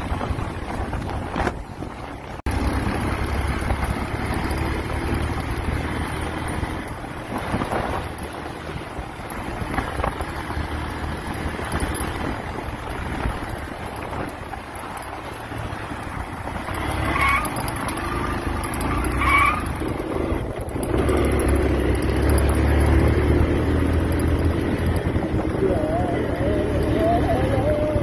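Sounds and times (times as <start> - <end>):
wind buffeting microphone: 0.0 - 4.4, 6.5 - 16.9
motorcycle engine rumble: 0.0 - 28.0.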